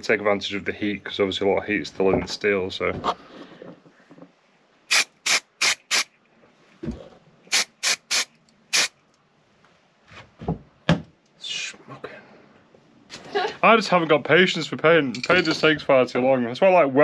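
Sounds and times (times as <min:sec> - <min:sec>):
aerosol spray hissing: 0:04.9 - 0:06.1, 0:07.5 - 0:08.9.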